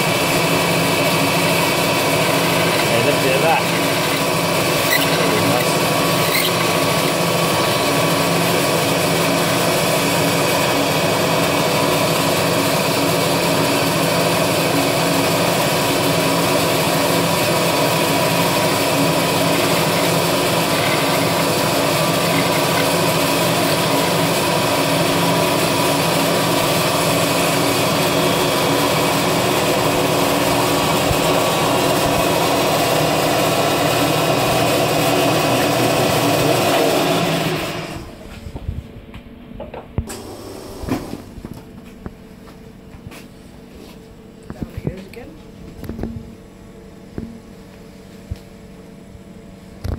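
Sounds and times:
milling machine cutting aluminium: 0.0 - 38.1.

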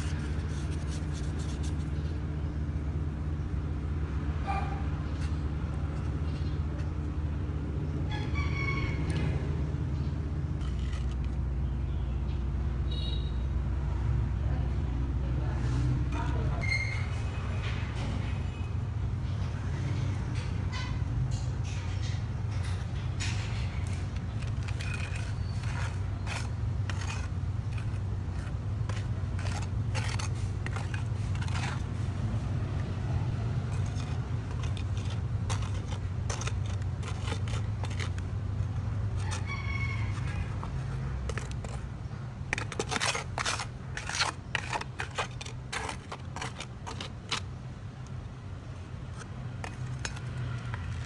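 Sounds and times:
short scraping strokes: 0.0 - 2.1, 23.4 - 32.5, 42.5 - 47.5.

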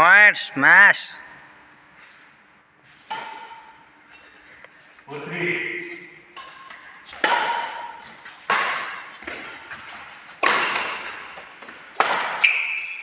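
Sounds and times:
badminton racket hitting shuttlecock: 3.0 - 3.8, 5.8 - 13.0.

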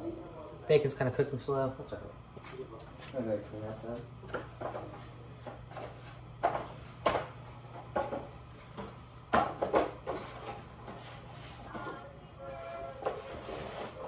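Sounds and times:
steady low hum: 0.0 - 14.0
kitchen knocks and clatters: 4.2 - 12.0.

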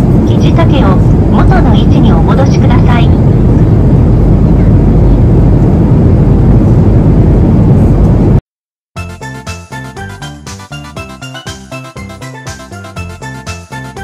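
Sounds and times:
airplane cabin engine noise: 0.0 - 8.4
music: 9.0 - 14.0.

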